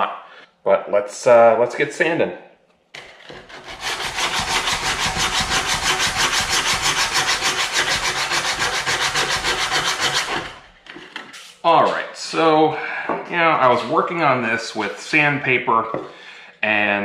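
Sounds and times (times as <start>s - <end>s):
sandpaper scratching wood: 3.2s - 10.7s.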